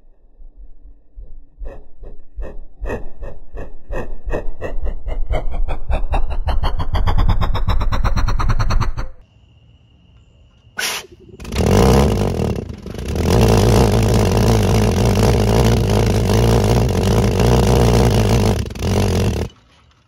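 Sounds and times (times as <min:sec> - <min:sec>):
pulse jet pulsing buzz: 0:10.8 - 0:19.5.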